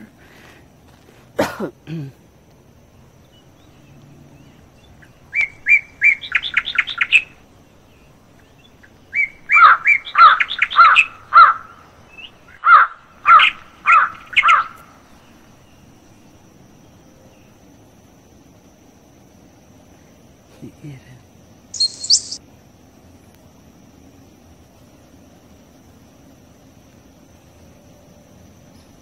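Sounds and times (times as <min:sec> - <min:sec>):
songbird singing: 0:02.1 - 0:22.4.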